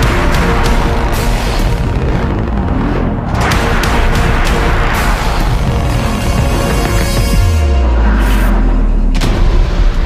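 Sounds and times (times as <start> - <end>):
background music with bass: 0.0 - 10.0.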